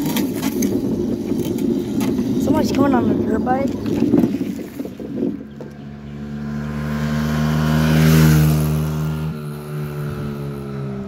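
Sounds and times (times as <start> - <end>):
dirt bike engine passing: 4.9 - 11.0.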